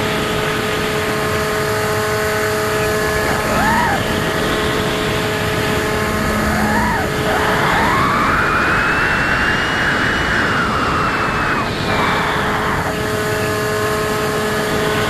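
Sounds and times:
electric motor and propeller whining: 0.0s - 15.0s
wind rushing: 2.8s - 12.9s.

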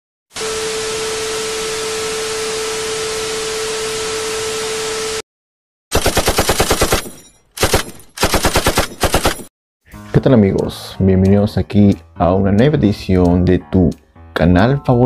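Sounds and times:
rapid machine-gun fire: 5.9s - 9.5s.

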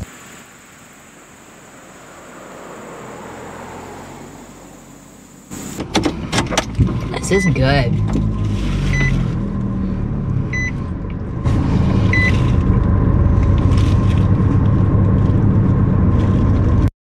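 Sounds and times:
car engine running: 0.0s - 16.9s
dashboard warning chime: 7.2s - 7.9s, 10.5s - 10.8s, 12.1s - 12.5s.

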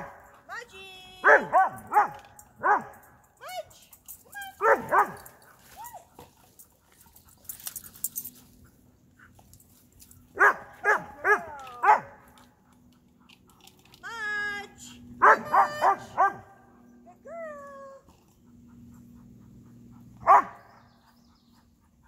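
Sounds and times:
dogs barking: 1.2s - 3.1s, 4.6s - 5.4s, 10.4s - 12.4s, 15.2s - 16.8s, 18.6s - 21.4s.

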